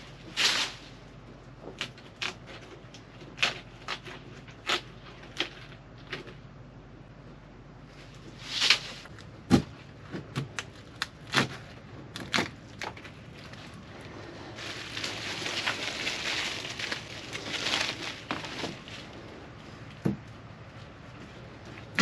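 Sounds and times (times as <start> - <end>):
plastic trash bag rustling: 13.3 - 19.4.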